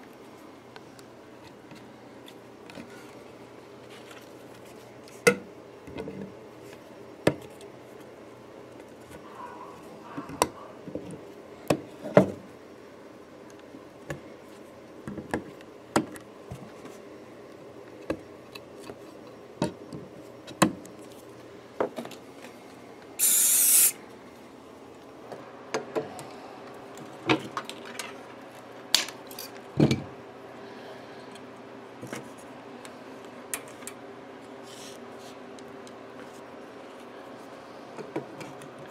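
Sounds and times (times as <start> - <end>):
aerosol spray hiss: 23.2 - 24.0.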